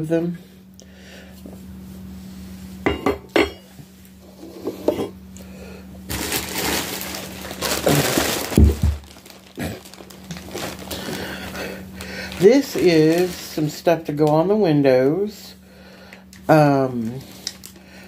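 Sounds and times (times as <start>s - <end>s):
plastic packaging crinkling: 6.1s - 14.6s, 16.0s - 18.0s.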